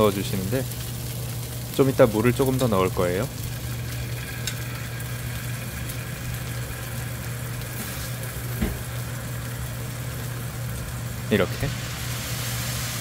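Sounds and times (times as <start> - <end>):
noodles sizzling in a frying pan: 0.0 - 13.0
steady low hum: 0.1 - 13.0
soft knock: 8.6 - 8.9.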